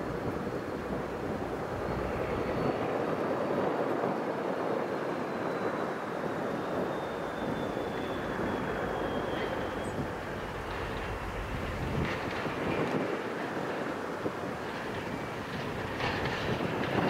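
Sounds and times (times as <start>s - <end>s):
diesel locomotive engine running: 0.0s - 3.3s, 6.5s - 17.0s
faint high whine: 0.0s - 16.3s.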